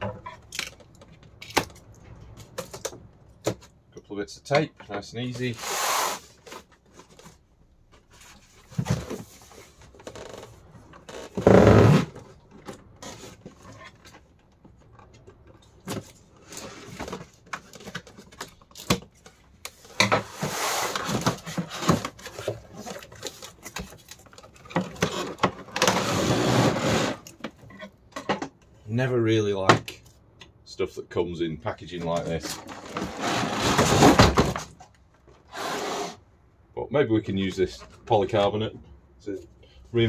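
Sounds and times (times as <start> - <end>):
cardboard box scraping on bench: 20.2 - 22.2, 25.1 - 27.3, 32.8 - 34.6, 35.5 - 36.2.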